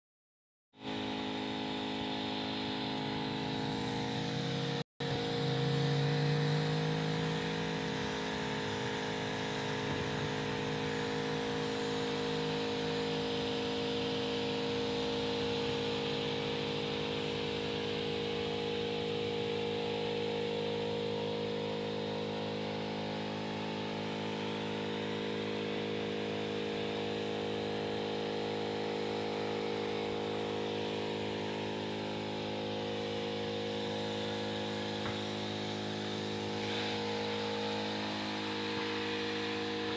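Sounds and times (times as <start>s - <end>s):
small engine running steadily: 0.8s - 39.9s.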